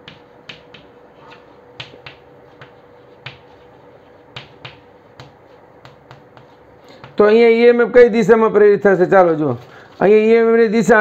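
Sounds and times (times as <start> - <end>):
chalk tapping on chalkboard: 0.0 - 7.4.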